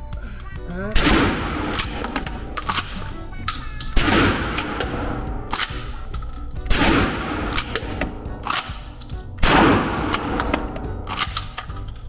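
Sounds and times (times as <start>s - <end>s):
shotgun blasts: 1.0s - 3.0s, 4.0s - 5.9s, 6.7s - 8.8s, 9.4s - 11.2s.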